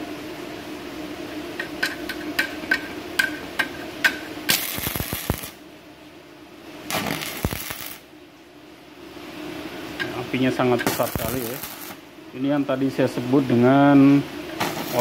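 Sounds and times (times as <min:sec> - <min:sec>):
welding arc hissing crackle: 0:01.6 - 0:05.7, 0:06.8 - 0:08.2, 0:09.4 - 0:15.0
welding arc snapping: 0:01.8 - 0:05.6, 0:06.9 - 0:08.1, 0:10.8 - 0:12.0, 0:14.6 - 0:15.0.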